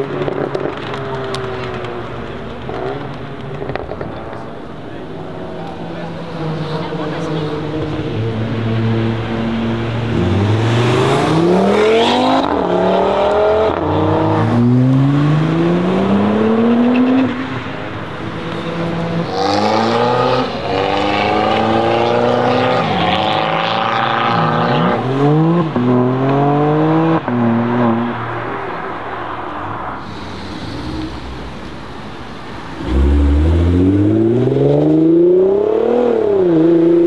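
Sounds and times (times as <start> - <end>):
car engine accelerating hard: 30.0 - 37.0.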